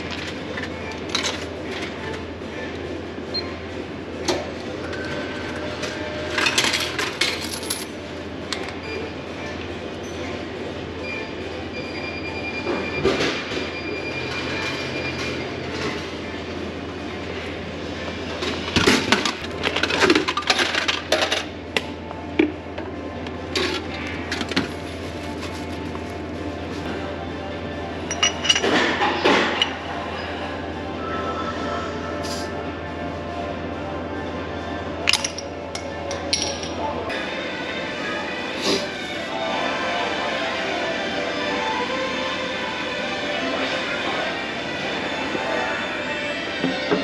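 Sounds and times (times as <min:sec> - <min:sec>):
steady low hum: 0:14.9 - 0:46.8.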